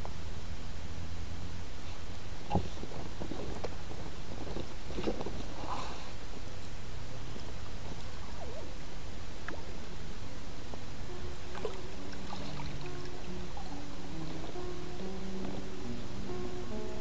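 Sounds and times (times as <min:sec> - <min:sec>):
steady low rumble: 0:00.0 - 0:17.0
guitar music: 0:11.0 - 0:17.0
water splashing and lapping: 0:11.5 - 0:14.6.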